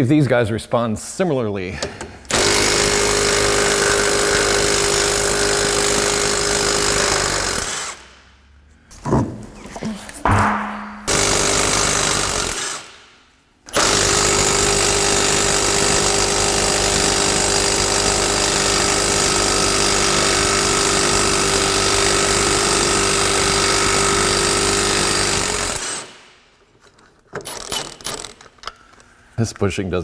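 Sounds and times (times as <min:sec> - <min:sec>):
impact wrench hammering: 0:02.3 - 0:08.2, 0:10.2 - 0:17.8.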